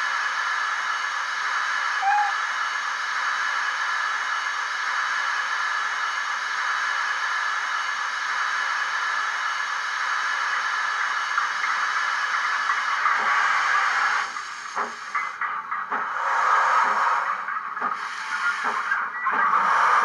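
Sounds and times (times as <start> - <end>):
steam hissing from speaker: 0.0 - 20.0
locomotive exhaust beats: 11.3 - 20.0.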